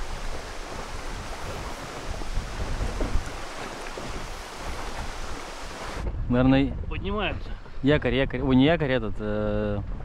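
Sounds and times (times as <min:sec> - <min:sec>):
rushing water: 0:00.0 - 0:06.1
wind buffeting microphone: 0:00.0 - 0:10.0.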